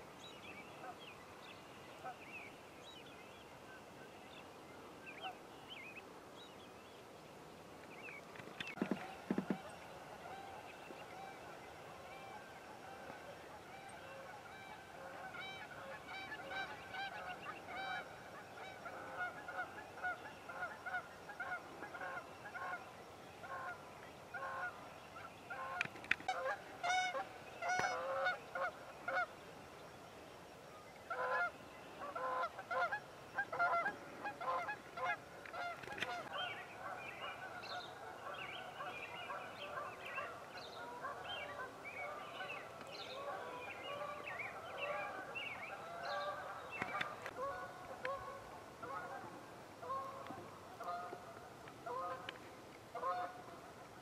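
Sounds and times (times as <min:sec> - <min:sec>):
geese honking: 0:13.8 - 0:22.8, 0:25.5 - 0:29.3, 0:31.1 - 0:52.3, 0:52.9 - 0:53.4.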